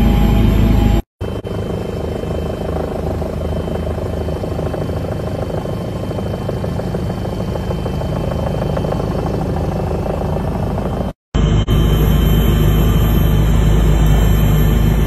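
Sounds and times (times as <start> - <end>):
helicopter engine and rotor: 0.0 - 15.0
thin high whine: 10.8 - 15.0.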